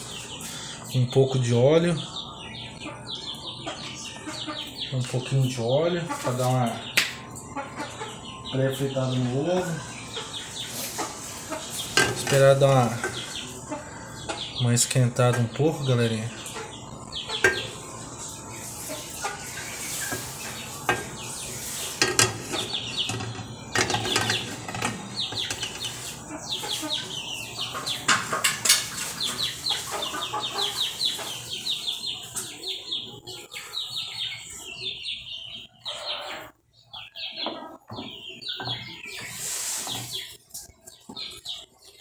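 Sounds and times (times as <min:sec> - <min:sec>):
birds chirping: 0:00.0 - 0:42.0
utensils knocking on cookware: 0:11.9 - 0:13.2, 0:20.1 - 0:21.2, 0:22.0 - 0:25.9.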